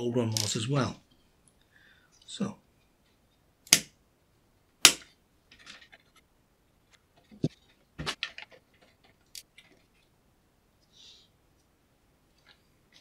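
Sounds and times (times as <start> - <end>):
cables rustling: 6.9 - 10.2.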